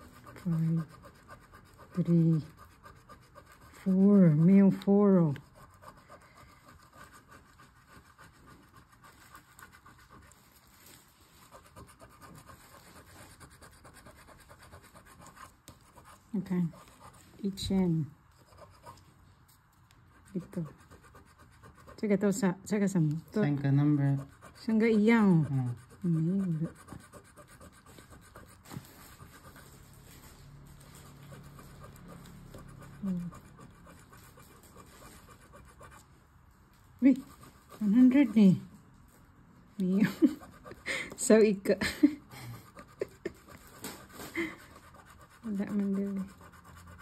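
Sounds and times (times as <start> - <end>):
coin scratching lottery ticket: 0.0 - 10.3, 31.0 - 36.0, 44.6 - 47.0.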